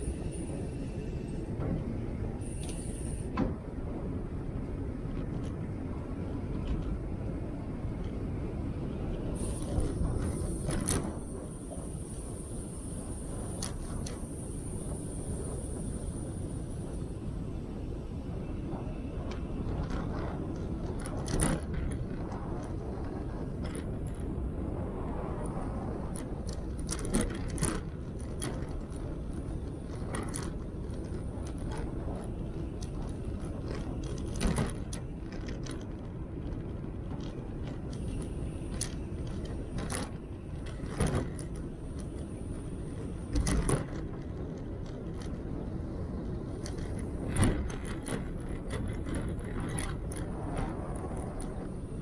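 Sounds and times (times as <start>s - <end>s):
wheels rumbling on rough path: 0.0s - 52.0s
knocks and rattles over bumps: 25.4s - 52.0s.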